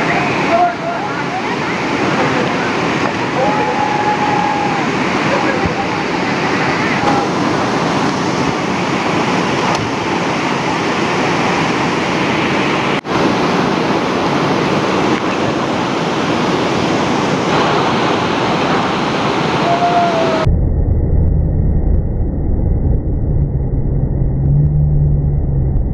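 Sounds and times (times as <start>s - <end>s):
river water rushing: 0.0s - 20.5s.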